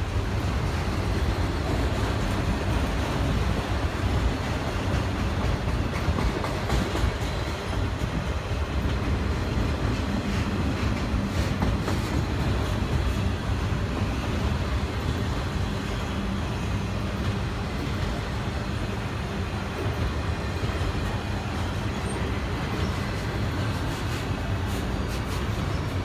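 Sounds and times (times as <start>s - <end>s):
steel train wheels rumbling on rail: 0.0s - 26.0s
wheels clicking over rail joints: 0.6s - 13.2s.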